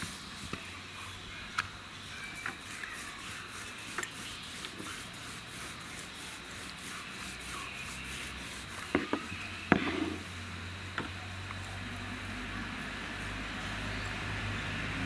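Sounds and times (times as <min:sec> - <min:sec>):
rolling pin rolling dough: 0:00.0 - 0:11.2.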